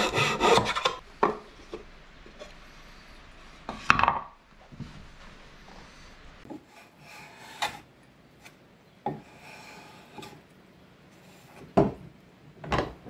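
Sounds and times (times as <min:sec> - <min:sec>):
scraping strokes on wood: 0:00.0 - 0:04.0, 0:05.6 - 0:10.4.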